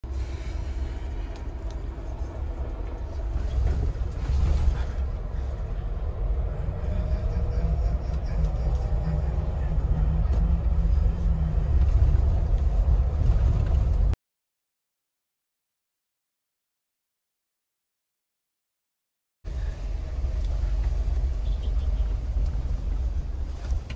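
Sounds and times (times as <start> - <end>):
car engine and tyre rumble: 0.0 - 14.2, 19.5 - 23.9.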